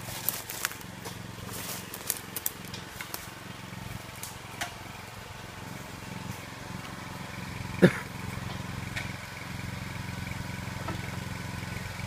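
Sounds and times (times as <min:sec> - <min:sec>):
twigs cracking: 0:00.0 - 0:03.3
small engine humming: 0:00.0 - 0:12.0.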